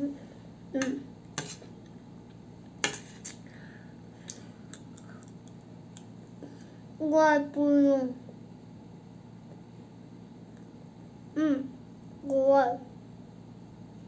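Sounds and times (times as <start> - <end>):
metal spoon scraping a plate: 1.4 - 1.7.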